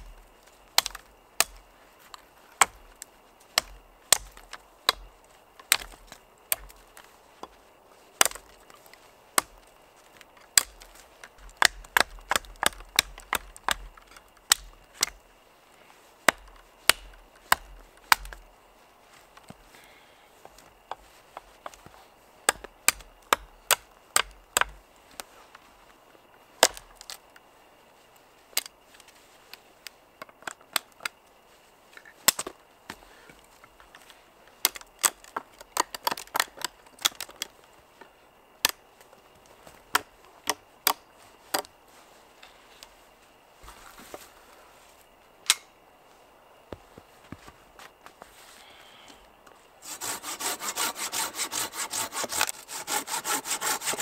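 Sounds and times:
knife chopping wood: 0:00.8 - 0:01.7, 0:03.5 - 0:06.8, 0:10.5 - 0:15.2, 0:16.3 - 0:18.4, 0:22.5 - 0:24.8, 0:49.8 - 0:54.0.

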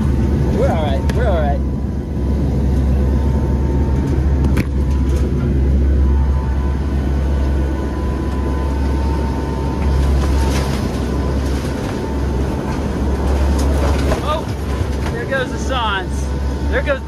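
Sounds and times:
aircraft engine and propeller drone: 0:00.0 - 0:17.0
knocks and rattles from turbulence: 0:00.0 - 0:17.0
thin steady whine: 0:00.0 - 0:17.0.

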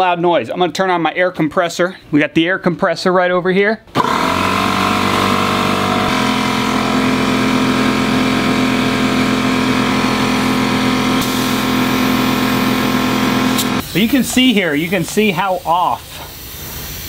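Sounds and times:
air compressor running: 0:03.9 - 0:17.0
high hiss: 0:13.6 - 0:17.0.

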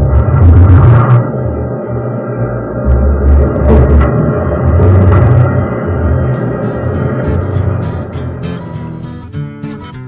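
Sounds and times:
deep low rumble: 0:00.0 - 0:09.3
acoustic guitar strumming: 0:06.4 - 0:10.0.

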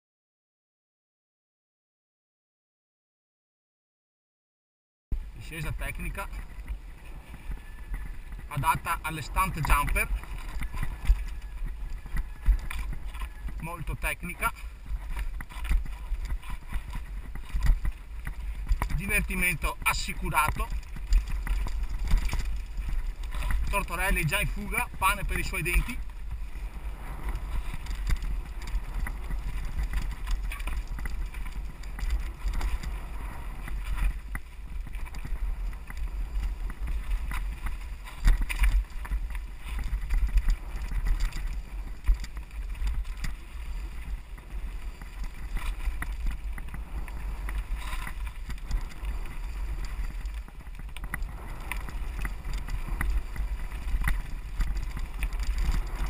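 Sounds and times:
wind rumble on microphone: 0:05.1 - 0:56.0
bike knocks and rattles over stones: 0:14.8 - 0:26.4, 0:27.2 - 0:56.0.

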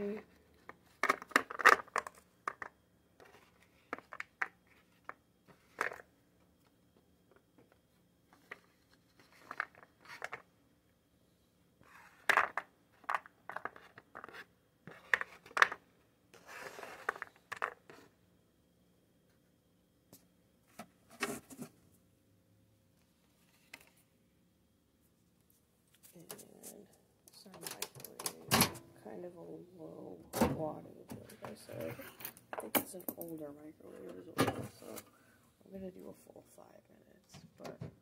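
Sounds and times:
cardboard scraping: 0:16.4 - 0:17.3.

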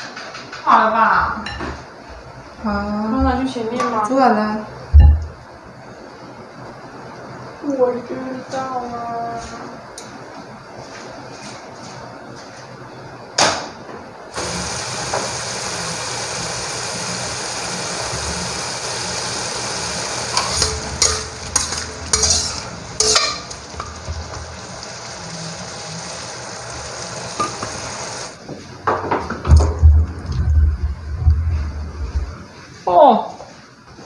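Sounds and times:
vegetables sizzling in a wok: 0:14.3 - 0:28.4
spatula scraping a wok: 0:20.3 - 0:24.6.

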